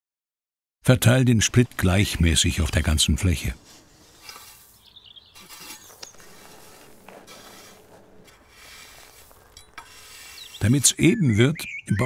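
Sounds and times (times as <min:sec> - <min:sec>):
shovel and rake scraping grit: 0:01.0 - 0:11.1
stones clicking: 0:03.8 - 0:10.8.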